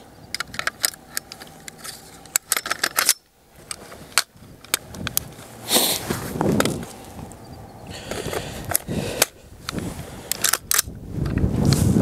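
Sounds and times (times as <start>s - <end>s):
metallic rifle handling clicks: 0.2s - 5.5s, 8.1s - 11.4s.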